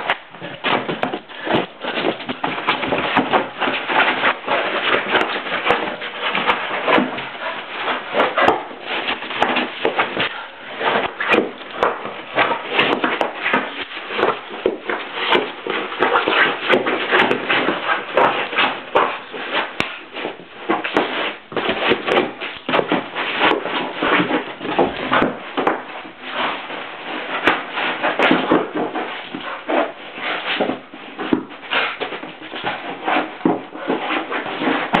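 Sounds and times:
dog batting a balloon: 0:00.0 - 0:35.0.

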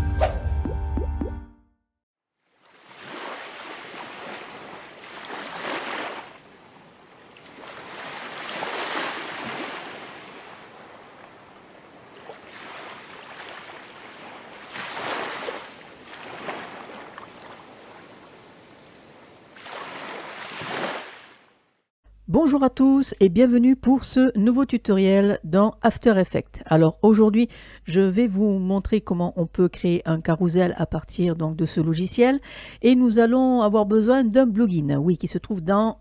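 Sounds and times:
ocean waves washing in: 0:02.4 - 0:21.7.

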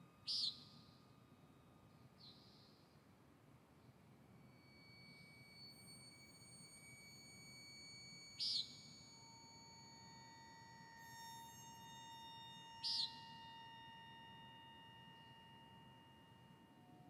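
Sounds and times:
steady high-tone drone: 0:04.1 - 0:17.0
high hissing chirp: 0:04.4 - 0:15.6.

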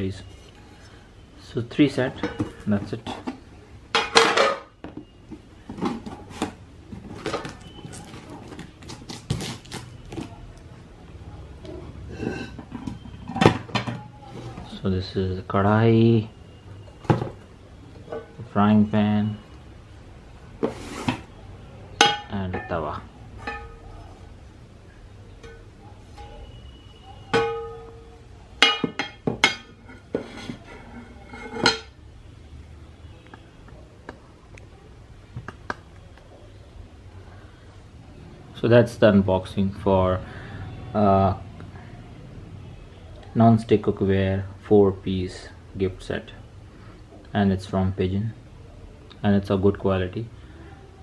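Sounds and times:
pans clinking and knocking: 0:02.2 - 0:05.1, 0:12.2 - 0:14.0, 0:22.0 - 0:22.8, 0:23.4 - 0:23.8, 0:27.3 - 0:31.9.

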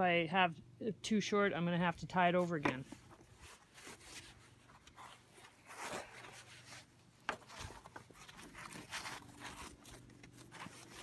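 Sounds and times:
rope sliding through gloved hands: 0:03.3 - 0:11.0.

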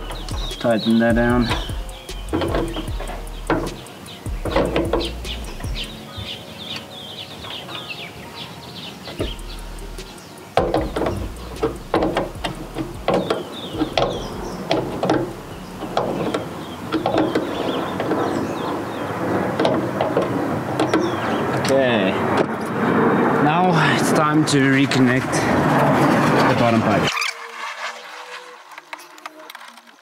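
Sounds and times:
background rush: 0:00.0 - 0:28.8
birds chirping: 0:00.0 - 0:29.4
hand tool clicks and knocks: 0:10.5 - 0:18.2.

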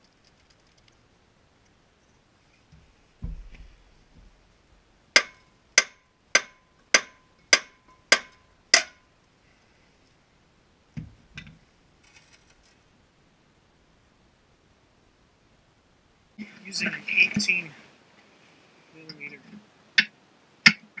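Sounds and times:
dull knocks: 0:02.8 - 0:04.4
dull thud: 0:02.8 - 0:04.4
hammer striking metal: 0:05.2 - 0:09.0.

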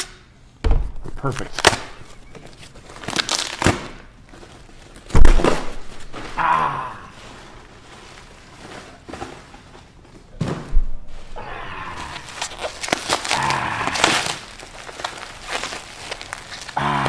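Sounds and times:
loud thump: 0:00.6 - 0:01.0, 0:05.1 - 0:05.8.

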